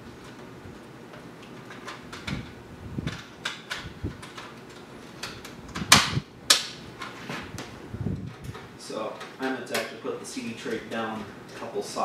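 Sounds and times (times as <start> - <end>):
metal clicks and knocks: 1.1 - 7.2.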